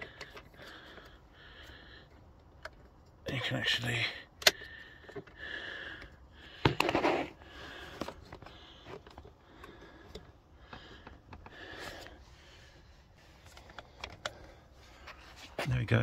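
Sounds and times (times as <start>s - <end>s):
plastic sliding and handling: 6.7s - 9.3s.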